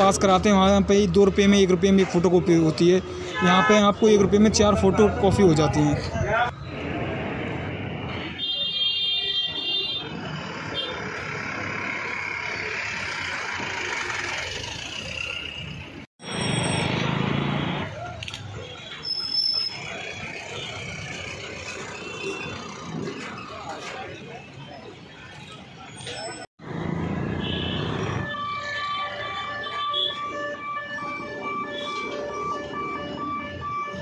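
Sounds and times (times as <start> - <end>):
motorbikes passing: 10.0 - 18.1, 26.6 - 34.0
people chattering: 17.8 - 26.5.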